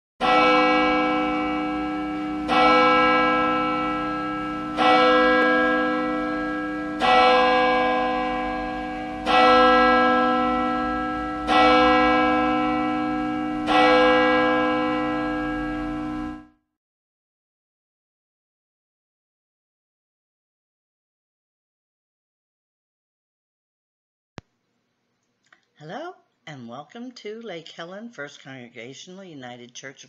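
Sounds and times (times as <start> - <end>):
church bell tolling: 0.2 - 16.6.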